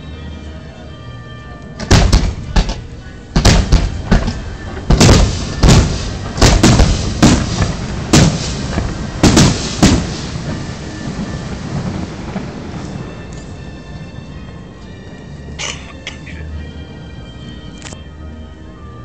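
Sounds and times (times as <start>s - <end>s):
firework shells bursting: 1.8s - 12.0s.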